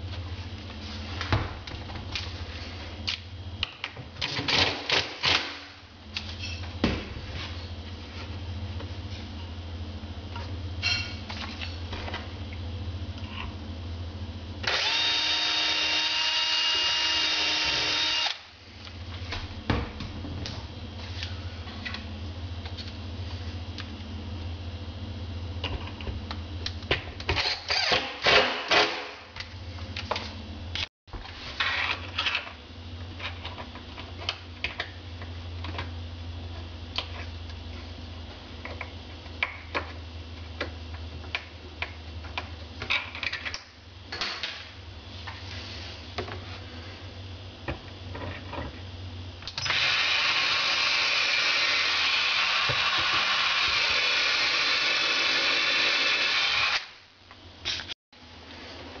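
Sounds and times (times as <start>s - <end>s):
cordless drill driving a screw: 14.7s - 18.4s, 49.6s - 56.9s.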